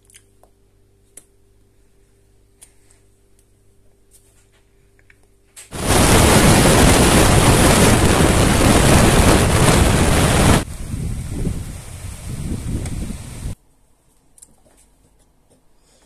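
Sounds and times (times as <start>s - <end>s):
low rumble: 5.8s - 13.5s
wind and road noise: 5.8s - 13.6s.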